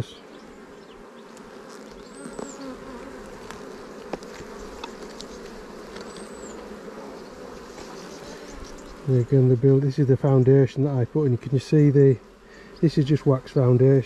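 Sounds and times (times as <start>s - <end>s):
bees buzzing: 0.0s - 14.0s
clicks and taps of hive frames: 1.3s - 6.8s, 7.6s - 8.9s.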